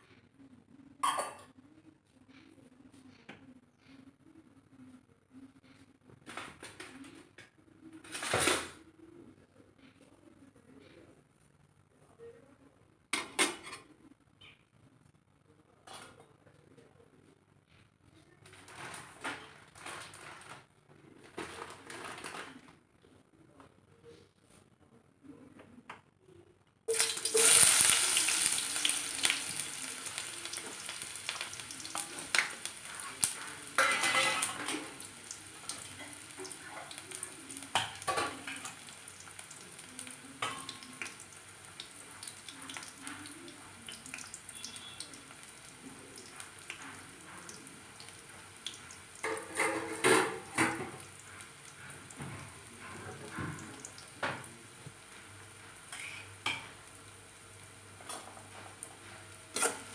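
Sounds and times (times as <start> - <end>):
onions sizzling in hot oil: 26.9 - 49.3, 50.5 - 52.8, 53.6 - 59.9.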